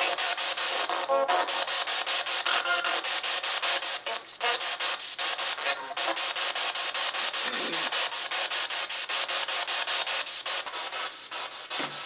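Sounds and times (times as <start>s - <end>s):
radio static hiss chopped rhythmically: 0.0s - 10.4s
brief snatch of voice: 7.4s - 8.1s.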